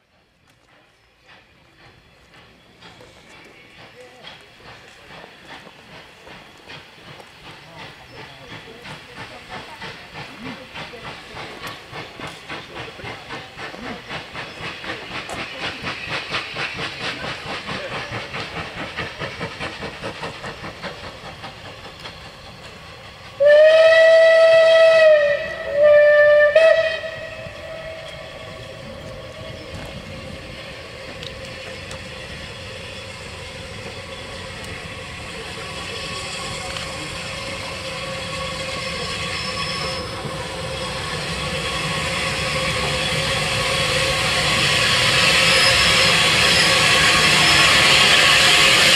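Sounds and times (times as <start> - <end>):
steam train rumbling: 0.0 - 48.9
steam locomotive whistle: 23.4 - 29.9, 35.7 - 48.9.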